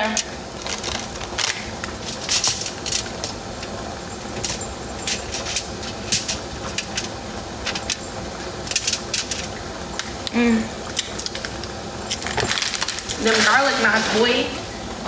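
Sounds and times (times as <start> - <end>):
plastic bag crinkling: 0.5 - 3.8, 12.1 - 14.4.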